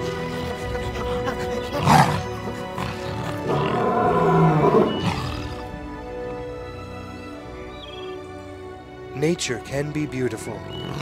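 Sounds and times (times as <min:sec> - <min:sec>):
background music: 0:00.0 - 0:11.0
loud roaring screams: 0:03.4 - 0:05.6.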